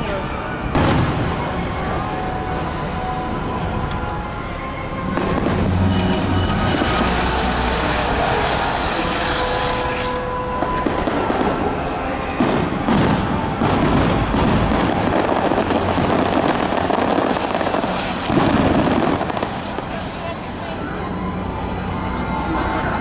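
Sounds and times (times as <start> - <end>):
fireworks bursting: 0.0 - 22.8
sharp firework bangs: 0.7 - 1.5, 5.1 - 20.0.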